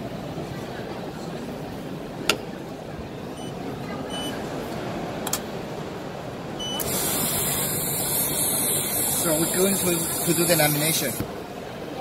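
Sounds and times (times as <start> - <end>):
short high beeps: 3.4 - 4.4, 6.6 - 7.0
loud steady air hiss: 6.8 - 11.4.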